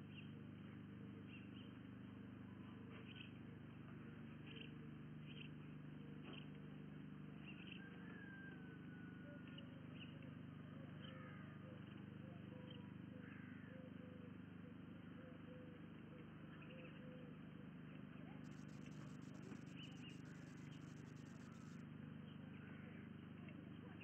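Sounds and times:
low hum: 17.9s - 21.8s.

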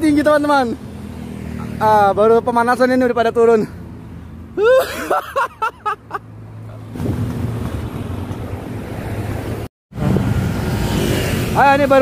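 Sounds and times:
wind rumbling on microphone: 6.9s - 11.6s.

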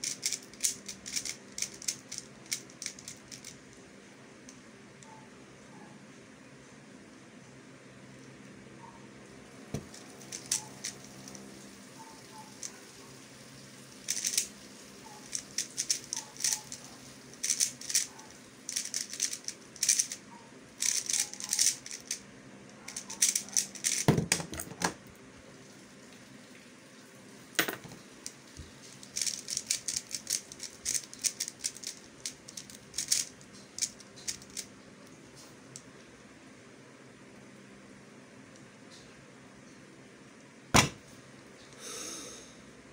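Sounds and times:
puzzle cube clicking and rattling: 0.0s - 3.6s, 9.8s - 11.4s, 14.0s - 22.2s, 22.9s - 24.7s, 28.9s - 34.7s.

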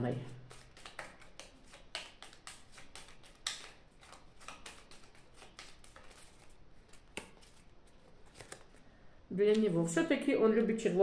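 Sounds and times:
playing cards being shuffled: 0.2s - 8.8s.

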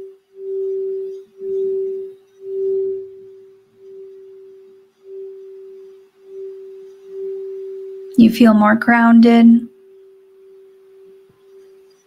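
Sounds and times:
wand rubbing bowl rim: 0.0s - 8.2s, 9.8s - 12.0s
singing bowl ringing tone: 0.0s - 12.0s.

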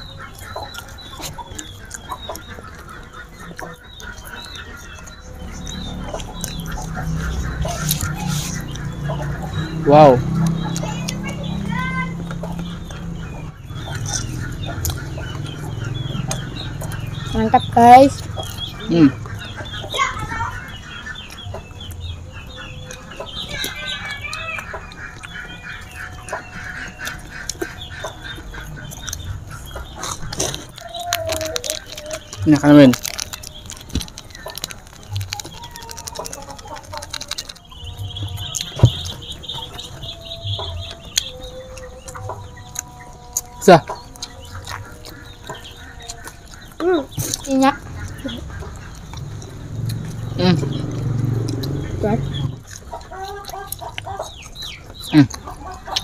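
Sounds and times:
animal high chirps: 0.0s - 56.0s
chickens clucking: 0.0s - 56.0s.

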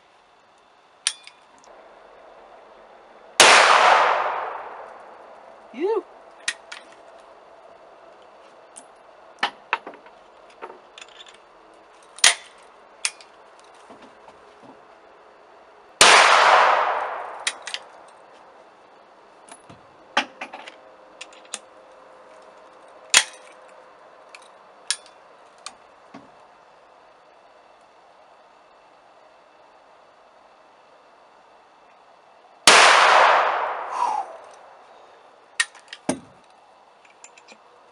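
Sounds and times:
gunshot: 3.4s - 4.8s, 16.0s - 17.4s, 32.7s - 34.0s.

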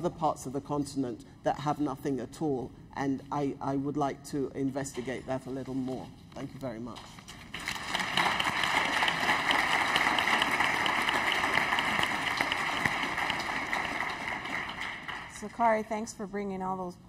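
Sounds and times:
audience applauding: 7.5s - 15.6s.

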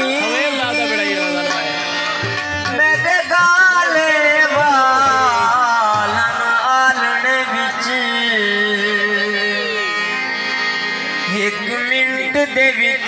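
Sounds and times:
man singing long notes: 0.0s - 10.2s, 11.2s - 13.0s
harmonium: 0.0s - 13.0s
tabla strokes: 1.5s - 6.6s.

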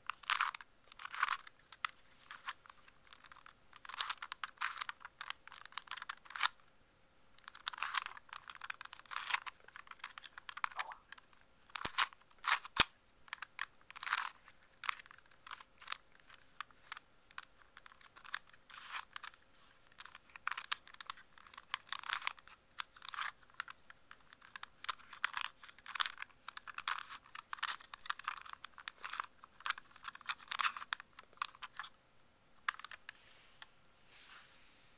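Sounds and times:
plastic puzzle cube clicking: 0.1s - 6.6s, 7.4s - 32.0s, 32.6s - 33.2s.

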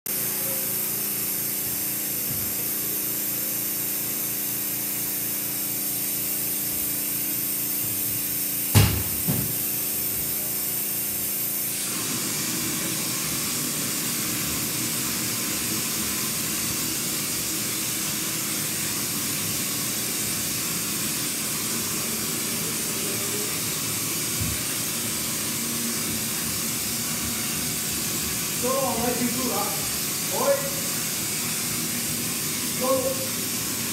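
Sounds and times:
compressed air hissing from spray gun: 0.4s - 33.9s
sharp knocks: 8.7s - 9.6s.

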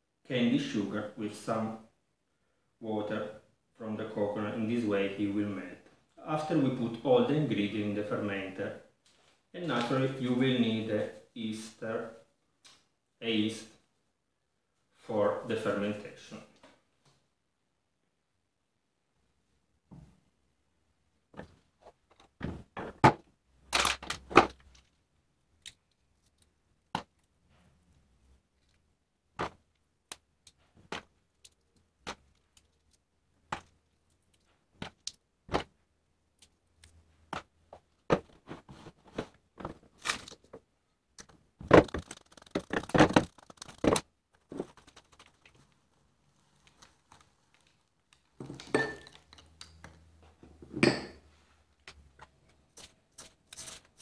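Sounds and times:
plastic items clicking and crinkling: 21.4s - 25.0s, 36.4s - 50.0s.

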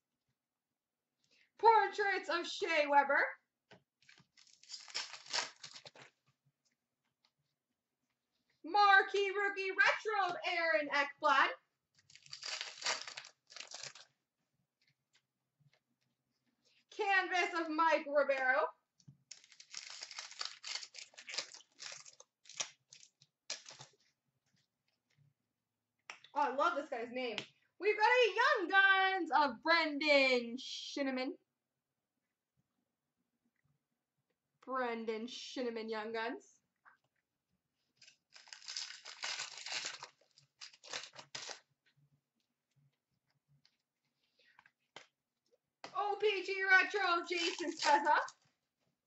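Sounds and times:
card pack wrapper crinkling: 4.0s - 6.1s, 12.0s - 14.1s, 19.3s - 24.0s, 38.0s - 41.6s, 46.8s - 48.4s.

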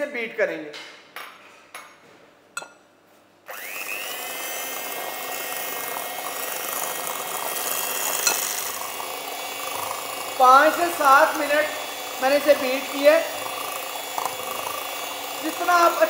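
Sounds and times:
electric mixer whining: 3.5s - 16.0s.

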